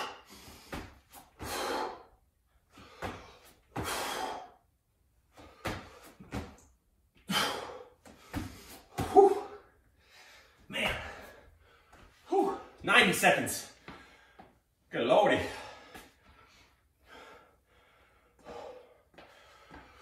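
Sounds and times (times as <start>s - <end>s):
man breathing hard: 0.0s - 6.4s, 7.2s - 12.8s, 13.7s - 14.8s, 15.4s - 20.0s
feet thumping on wooden floor: 5.4s - 6.6s, 8.0s - 9.6s, 10.7s - 11.4s
man grunting: 9.0s - 9.6s, 10.7s - 11.4s, 12.3s - 12.8s.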